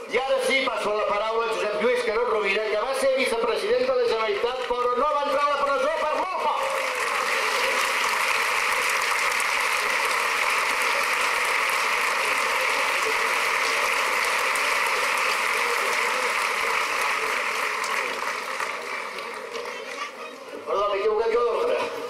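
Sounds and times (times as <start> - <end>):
large crowd applauding: 4.1 - 20.6.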